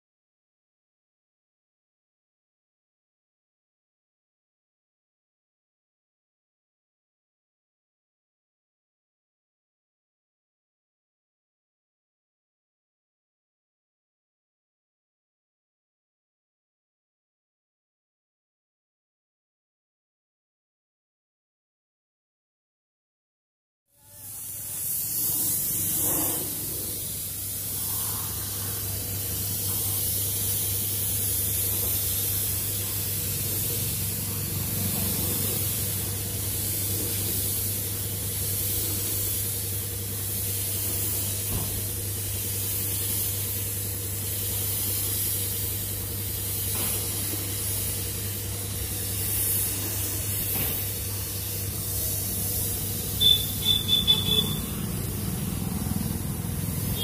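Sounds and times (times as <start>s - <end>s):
paint spray gun hissing: 24.0s - 57.0s
short high beep: 53.2s - 54.8s.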